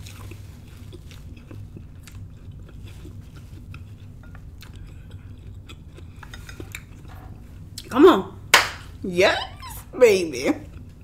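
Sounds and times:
woman chewing salad: 0:00.0 - 0:07.9, 0:10.6 - 0:11.0.

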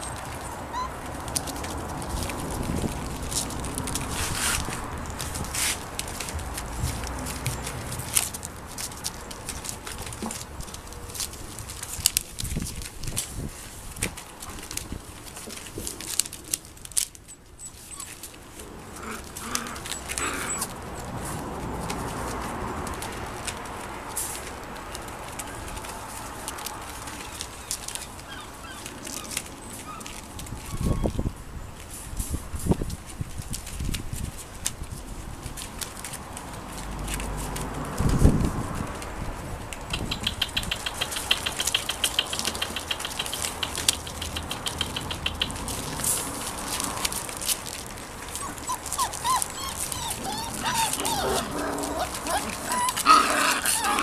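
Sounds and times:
puppies yelping and whining: 0:00.0 - 0:02.6, 0:17.2 - 0:21.4, 0:25.2 - 0:31.4, 0:40.0 - 0:54.0.

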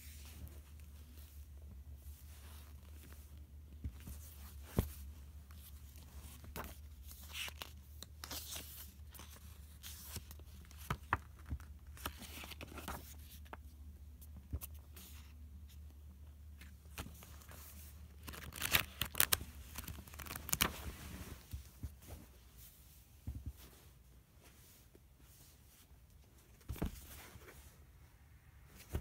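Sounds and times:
paper pages rustling: 0:04.0 - 0:13.6, 0:16.6 - 0:22.3.

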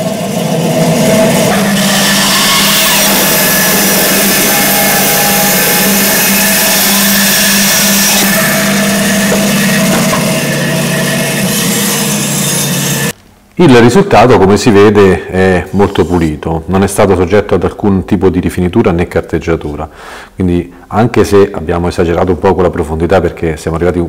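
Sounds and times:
band saw motor hum: 0:00.0 - 0:13.2.

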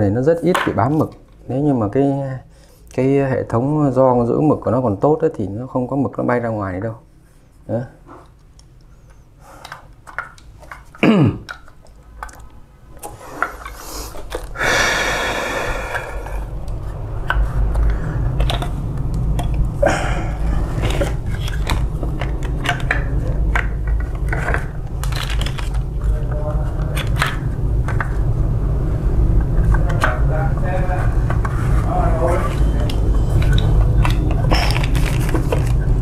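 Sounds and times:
steady low hum: 0:06.9 - 0:36.0
plastic and metal parts rattling: 0:20.6 - 0:28.2, 0:32.6 - 0:36.0.

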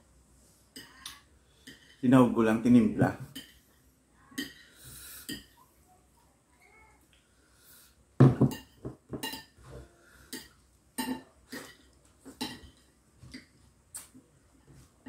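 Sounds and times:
cutlery knocking on a plate: 0:08.2 - 0:09.5.

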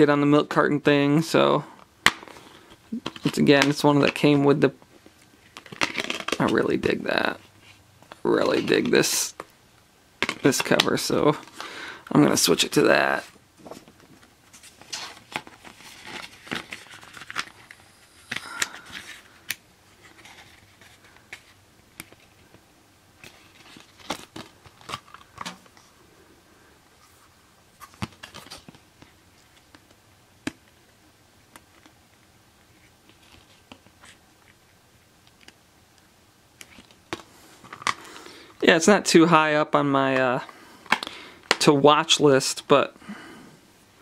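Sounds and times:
paper sleeve rustling: 0:13.2 - 0:22.5.

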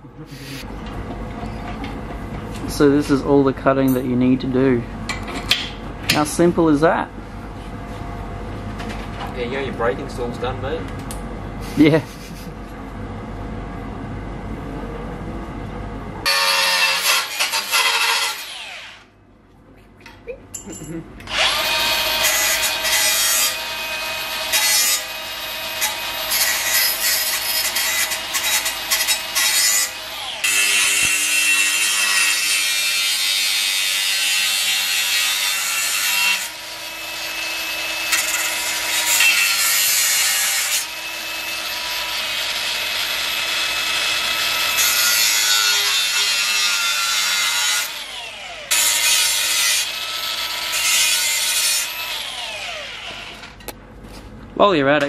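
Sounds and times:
angle grinder cutting steel: 0:16.2 - 0:19.1, 0:21.2 - 0:53.4.

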